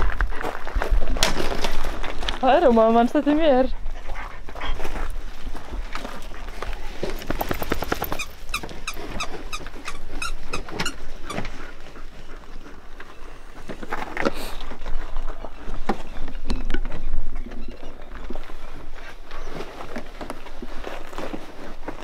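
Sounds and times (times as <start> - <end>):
dog steps scrabbling on gravel: 0.0 - 3.6, 4.8 - 11.7
dog quick breaths or whines: 5.9 - 14.9.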